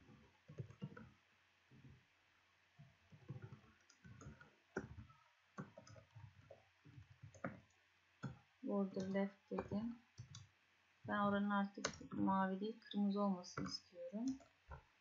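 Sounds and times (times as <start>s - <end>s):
typing on computer keyboard: 0.5s - 1.1s, 3.2s - 8.4s, 9.0s - 10.5s, 11.7s - 12.2s.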